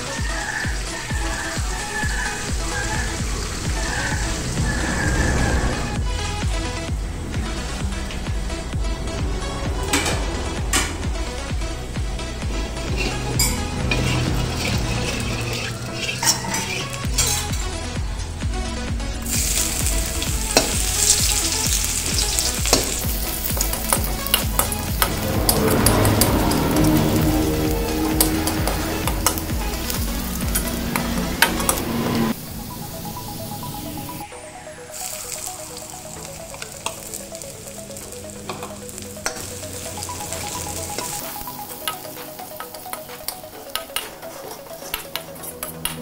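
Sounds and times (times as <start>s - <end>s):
ginger sizzling in hot oil: 0.0s - 5.0s, 19.2s - 45.7s
metal ladle stirring: 13.0s - 17.7s, 19.4s - 32.3s.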